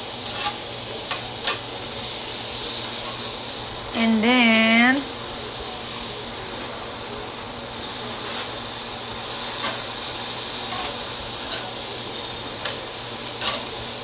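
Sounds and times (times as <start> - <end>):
beef sizzling on grill pan: 0.0 - 14.0
tongs clicking against pan: 0.3 - 1.6, 12.6 - 13.7.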